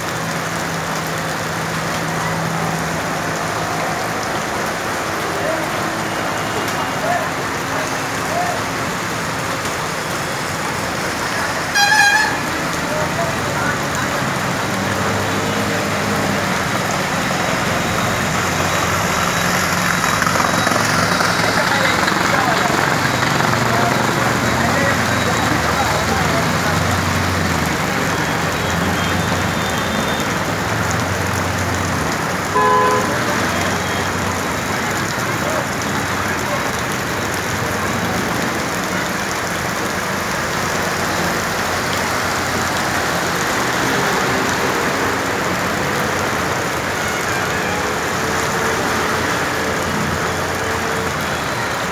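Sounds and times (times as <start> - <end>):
heavy rain: 0.0 - 51.9
rushing floodwater: 0.0 - 51.9
vehicle horn: 11.7 - 12.5, 32.5 - 34.0.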